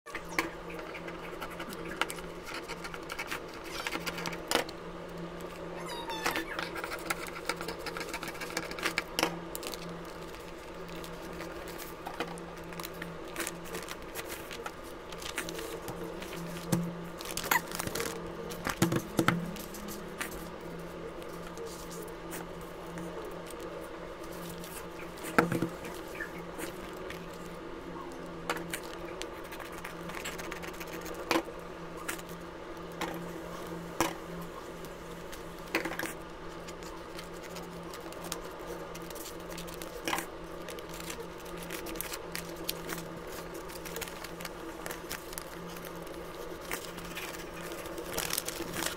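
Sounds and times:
steady low hum: 0:00.1 - 0:48.9
paper rustling: 0:05.9 - 0:18.8, 0:35.3 - 0:48.9.

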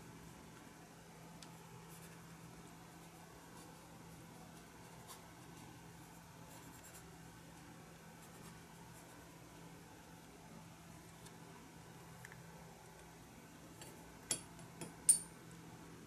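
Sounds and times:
low steady hum: 0:00.0 - 0:16.0
brush on paper: 0:01.6 - 0:09.7.

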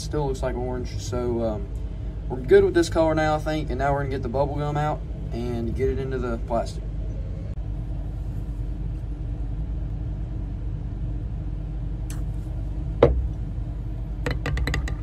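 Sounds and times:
low machine rumble: 0:00.0 - 0:15.0.

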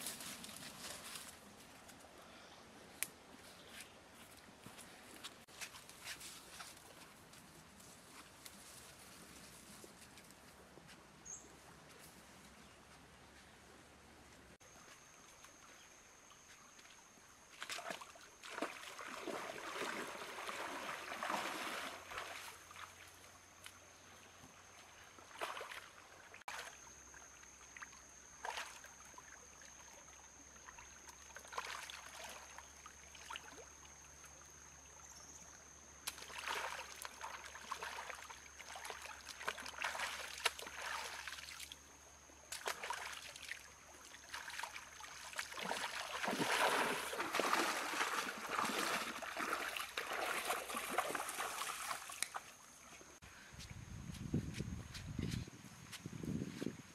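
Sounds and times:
stream flowing gently: 0:14.6 - 0:53.2
water splashing: 0:17.6 - 0:23.1, 0:25.2 - 0:26.8, 0:36.1 - 0:41.8, 0:42.5 - 0:52.6.

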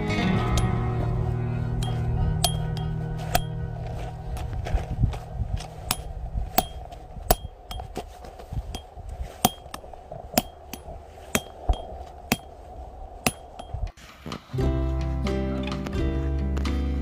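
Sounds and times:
sharp metallic clinks: 0:00.4 - 0:01.0, 0:01.8 - 0:03.6, 0:13.2 - 0:13.9.

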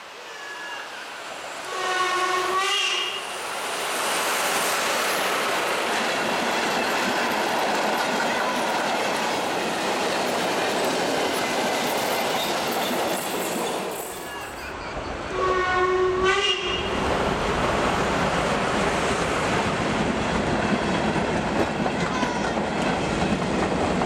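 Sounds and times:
train wheels on rails: 0:00.0 - 0:24.0
steam locomotive whistle: 0:00.3 - 0:03.4, 0:15.3 - 0:17.0.

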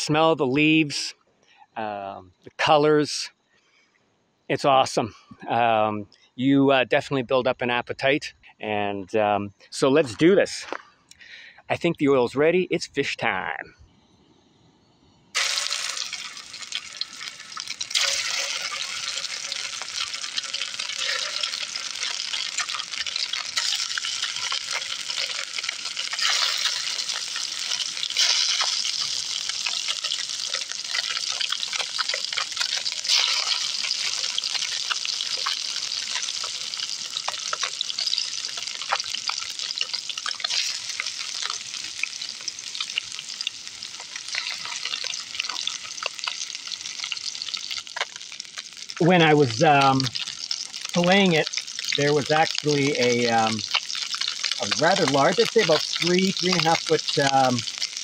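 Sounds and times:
fish sizzling in hot oil: 0:15.3 - 0:58.0.

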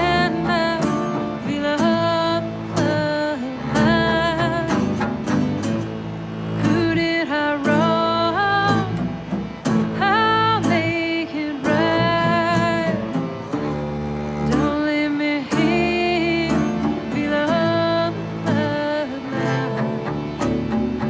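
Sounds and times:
person singing wavering notes: 0:00.0 - 0:05.1, 0:09.8 - 0:20.2
bowed strings: 0:00.0 - 0:21.0
guitar: 0:00.0 - 0:21.0.

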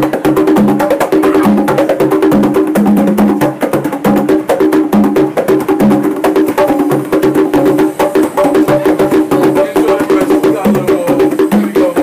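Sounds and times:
fast percussion drumming: 0:00.0 - 0:12.0.

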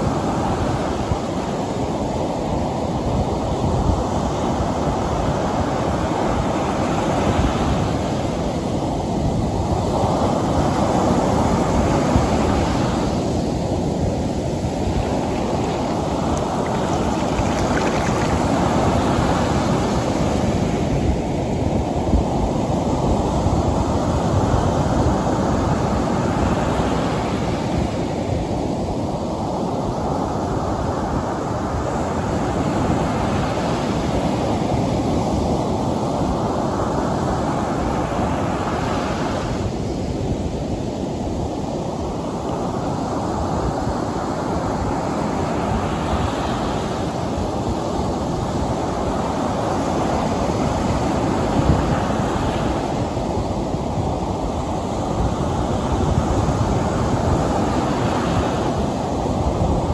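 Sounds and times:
surf breaking on sand: 0:09.6 - 0:21.2.

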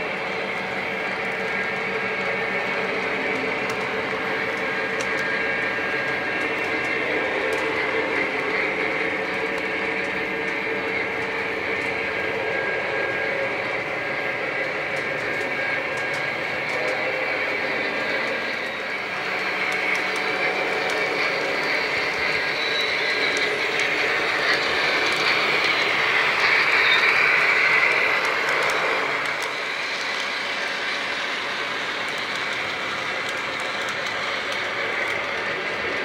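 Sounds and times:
model train rolling on track: 0:00.0 - 0:36.0.

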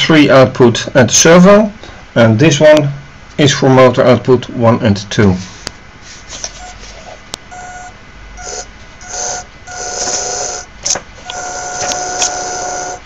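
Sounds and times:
small electric motor whining: 0:07.6 - 0:13.0.

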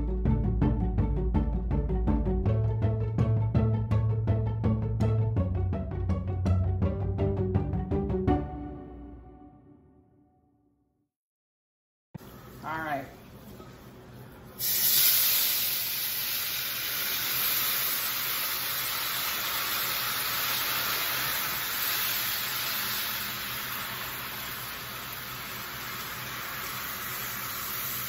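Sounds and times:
broth sizzling in hot butter: 0:14.6 - 0:28.0
loud hiss: 0:14.6 - 0:28.0.

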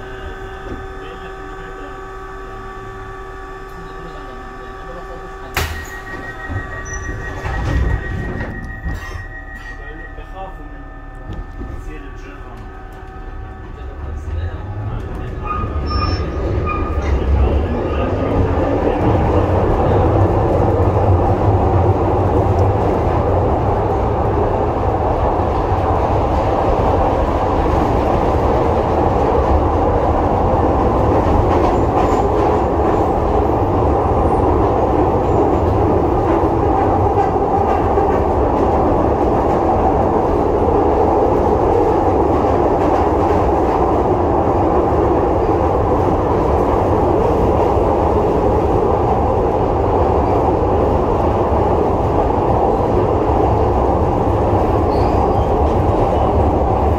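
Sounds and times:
train wheels rumbling on rails: 0:00.0 - 0:56.9.

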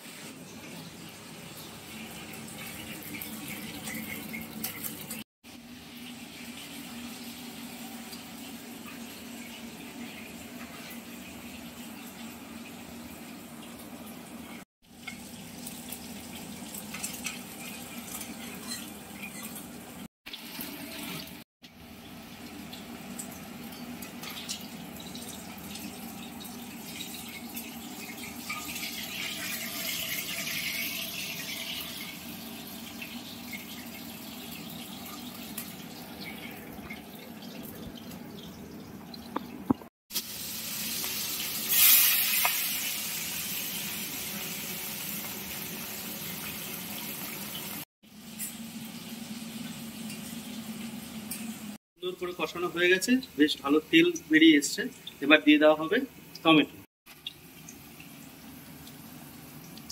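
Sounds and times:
spice paste sizzling in oil: 0:40.1 - 0:49.7.

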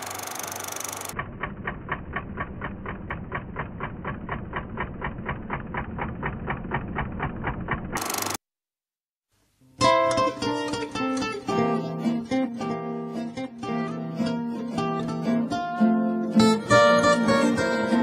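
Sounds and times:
film projector hiss: 0:00.0 - 0:01.2, 0:08.0 - 0:08.4
projector mechanical clatter: 0:00.0 - 0:08.4.

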